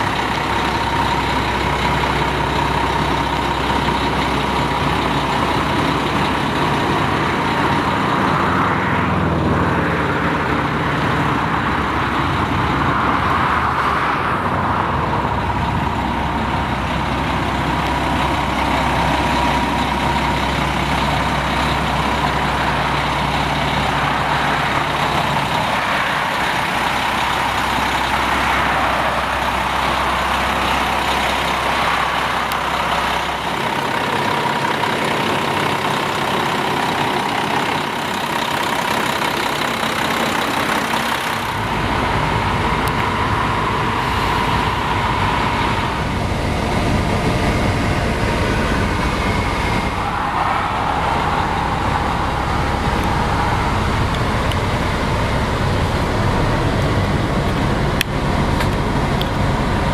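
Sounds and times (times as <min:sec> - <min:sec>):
diesel engine idling: 0:00.0 - 0:59.9
faint steady whine: 0:41.5 - 0:59.9.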